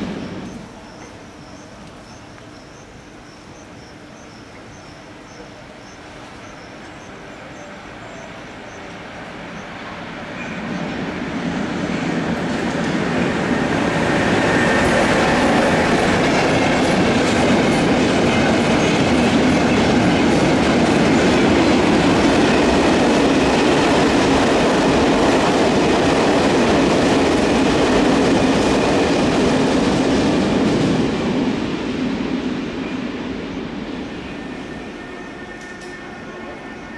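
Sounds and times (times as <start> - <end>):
freight train passing: 0.0 - 36.9
wheels clacking over rail joints: 12.0 - 31.0.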